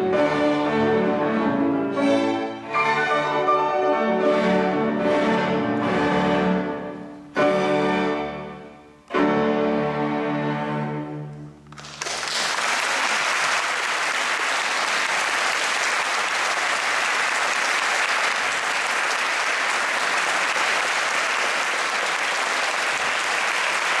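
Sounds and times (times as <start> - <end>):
audience applauding: 11.7 - 24.0.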